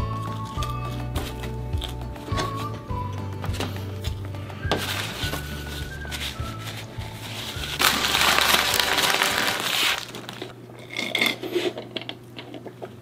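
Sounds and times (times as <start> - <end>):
paper wrapper crinkling: 4.7 - 10.5.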